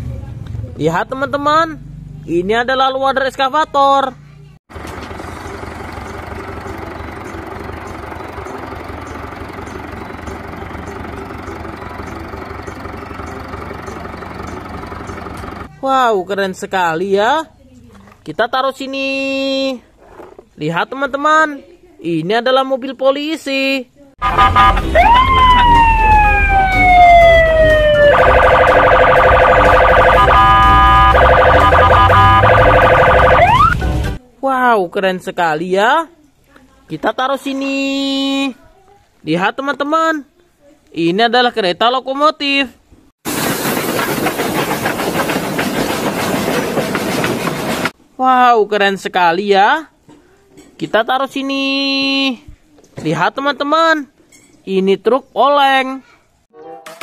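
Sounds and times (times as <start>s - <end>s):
excavator diesel engine running: 4.7s - 15.7s, 24.2s - 34.2s, 43.3s - 48.0s
electronic police siren: 24.2s - 33.8s.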